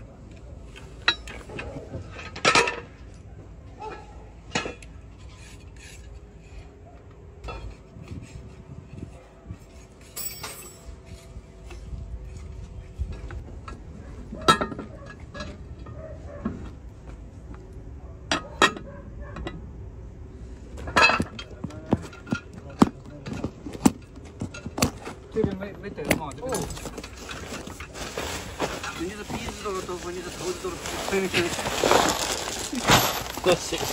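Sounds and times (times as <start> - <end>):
steel track parts clinking: 0.7 - 3.2, 9.6 - 16.0, 20.8 - 33.9.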